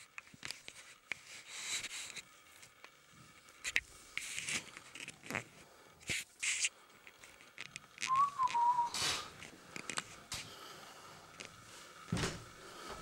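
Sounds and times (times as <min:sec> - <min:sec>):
camera handling rustle: 0:03.6 - 0:08.7
footsteps on wooden floor: 0:12.1 - 0:13.0.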